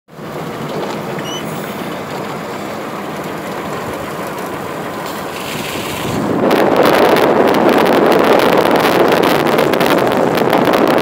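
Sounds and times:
tyres on wet road: 0.1 - 11.0
brief high squeak: 1.2 - 1.8.

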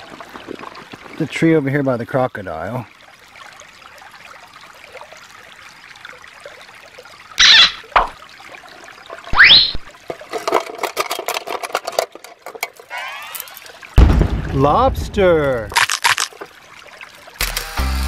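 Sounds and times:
stream trickling: 0.0 - 18.0
plastic toys clattering: 10.0 - 13.7.

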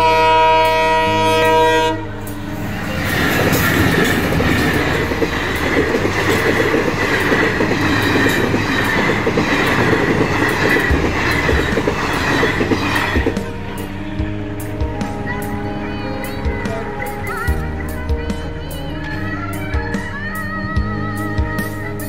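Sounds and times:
diesel locomotives passing: 0.0 - 20.2
wheels clattering over rail joints: 2.8 - 13.6.

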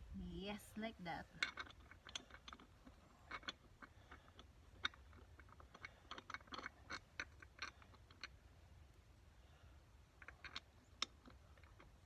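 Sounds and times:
metallic clicks of wheel nuts: 1.3 - 8.4, 10.1 - 12.0.

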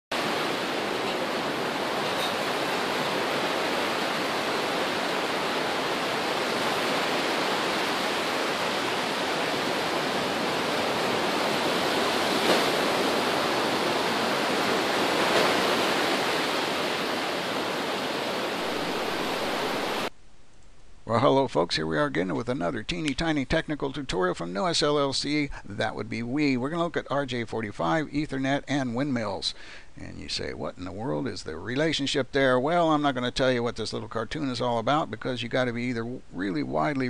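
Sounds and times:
waves breaking on beach: 0.1 - 20.1.

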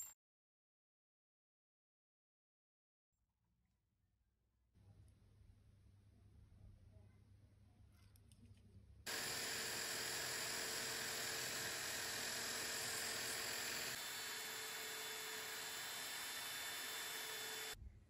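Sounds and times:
electric drill running: 9.1 - 17.8
file on spinning metal rod: 9.1 - 17.8.

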